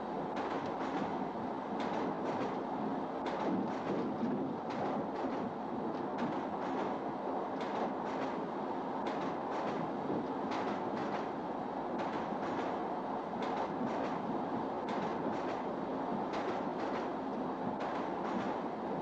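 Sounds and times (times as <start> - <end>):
train rumbling: 0.0 - 19.0
wheels clacking over rail joints: 0.3 - 1.2, 3.2 - 7.0, 7.6 - 8.4, 9.0 - 11.4, 12.0 - 12.8, 13.4 - 15.7, 16.3 - 17.2, 17.8 - 18.7.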